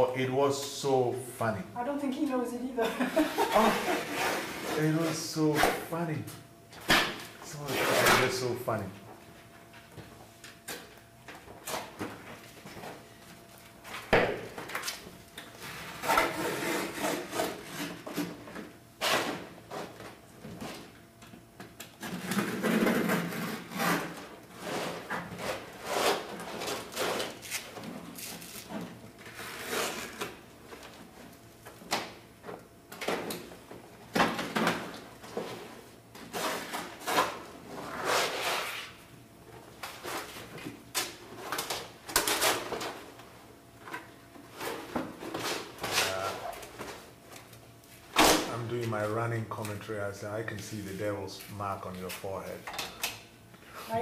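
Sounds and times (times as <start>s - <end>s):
rolled sheet rustling and scraping: 15.6s - 18.0s, 36.2s - 39.0s.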